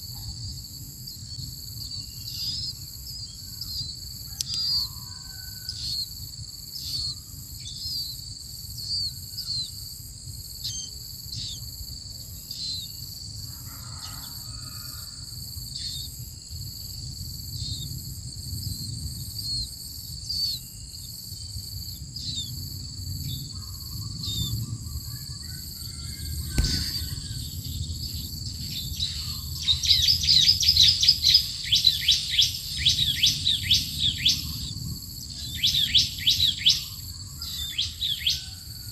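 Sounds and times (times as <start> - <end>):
single knock: 26.5 - 27.3
falling bird call notes: 26.5 - 27.6
nestlings chirping: 26.5 - 34.8.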